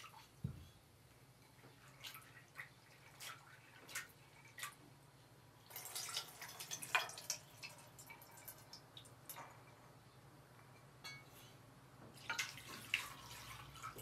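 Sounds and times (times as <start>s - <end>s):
water drips: 5.6s - 9.9s
water splashing into metal basin: 5.7s - 9.5s, 12.2s - 14.0s.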